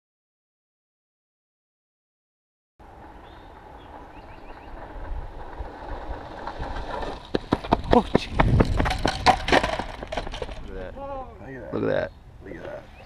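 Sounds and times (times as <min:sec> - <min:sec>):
longboard wheels rolling on asphalt: 0:02.8 - 0:11.4
board slaps and clatters: 0:06.8 - 0:10.7.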